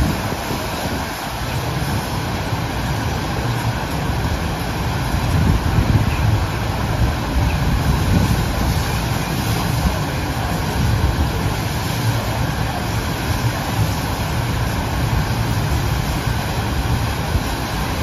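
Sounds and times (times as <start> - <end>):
water rushing with low rumble: 0.0 - 18.0.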